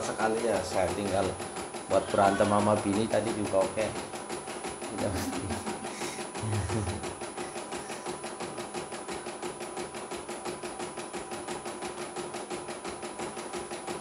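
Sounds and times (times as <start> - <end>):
motor hum: 0.0 - 9.5
embroidery machine needle strokes: 0.4 - 8.8.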